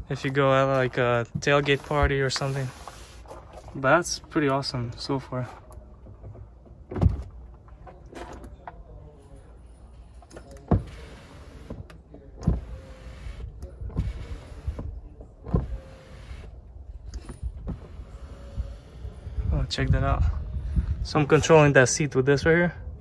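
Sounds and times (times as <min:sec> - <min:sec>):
thump: 0:06.9 - 0:07.3
electric seat motors whirring: 0:10.8 - 0:14.9, 0:15.5 - 0:16.6, 0:17.2 - 0:19.6.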